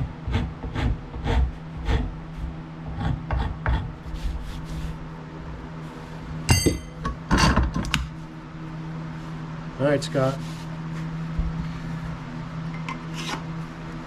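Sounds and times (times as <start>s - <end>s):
hand rasp shaping wood: 0.0s - 2.2s, 2.9s - 4.7s
sharp metallic ring: 6.5s - 7.1s.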